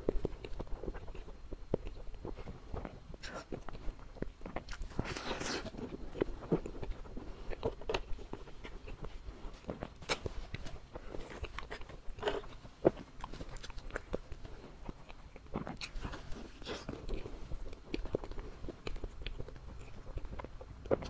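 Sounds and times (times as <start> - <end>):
person chewing pastry: 0.0 - 21.0.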